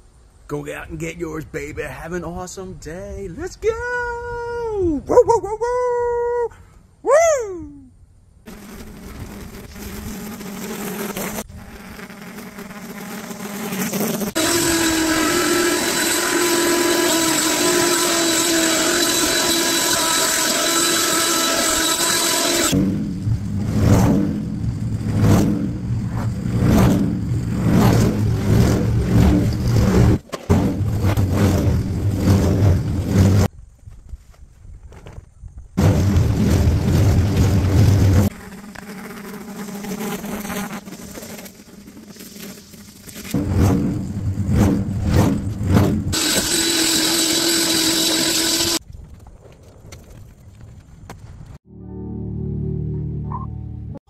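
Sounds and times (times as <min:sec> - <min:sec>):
lawn mower engine running: 0:08.5 - 0:33.5, 0:35.8 - 0:48.8.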